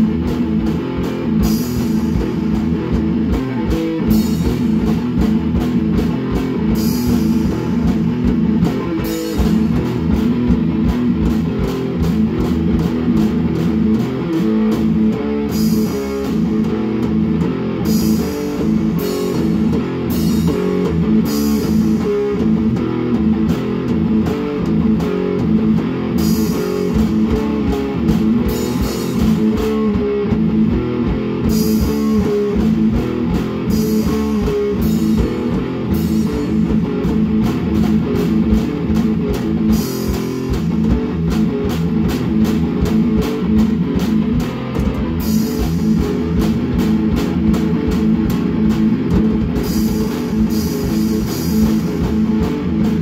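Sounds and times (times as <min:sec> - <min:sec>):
guitar chords: 0:00.0 - 0:53.0
rock drum kit: 0:00.0 - 0:53.0.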